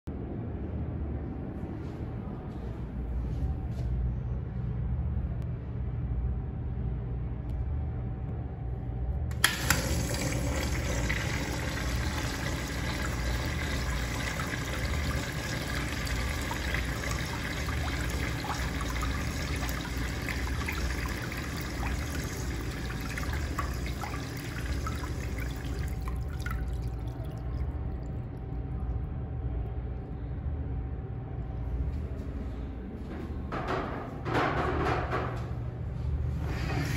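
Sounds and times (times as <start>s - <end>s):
flush valve clicks: 9.3s - 13.6s
water rushing through urinal: 9.3s - 28.5s.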